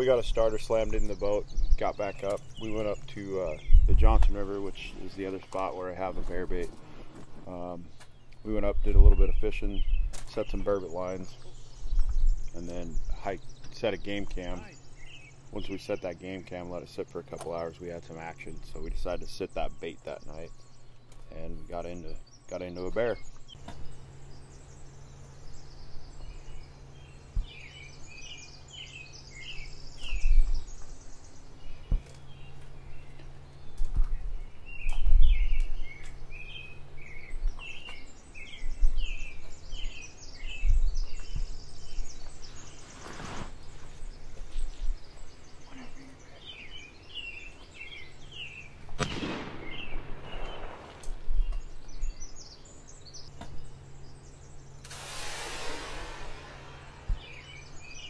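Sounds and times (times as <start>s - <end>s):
low rumble on microphone: 0.0s - 15.8s, 17.1s - 58.0s
songbirds singing: 0.0s - 58.0s
high bird trills: 17.2s - 58.0s
gunshot with rolling echo: 49.0s - 51.3s.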